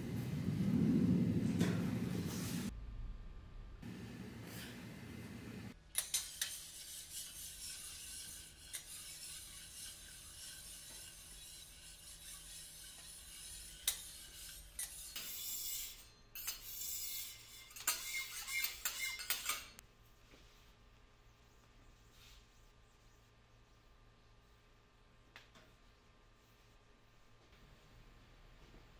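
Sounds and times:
metal spatulas scraping griddle: 0:06.0 - 0:19.8.

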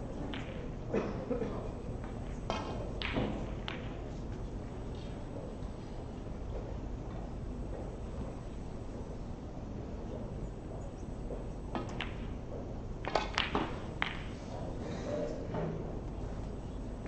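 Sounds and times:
snooker balls clicking: 0:00.2 - 0:00.7, 0:02.0 - 0:05.6, 0:11.2 - 0:14.8.

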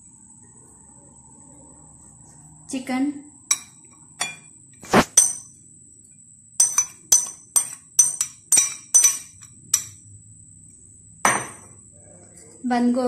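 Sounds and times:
metal clinking on glass bowl: 0:03.5 - 0:04.5, 0:05.2 - 0:05.5, 0:06.6 - 0:10.0.

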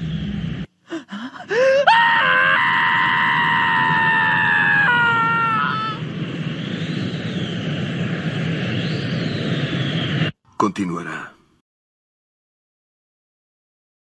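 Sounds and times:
boy screaming: 0:01.5 - 0:06.0.

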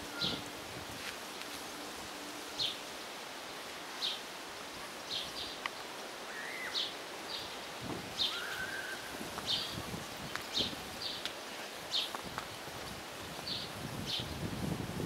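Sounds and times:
small birds chirping: 0:00.0 - 0:00.5, 0:04.9 - 0:12.3, 0:13.4 - 0:14.4
outdoor background hiss: 0:00.0 - 0:15.0.

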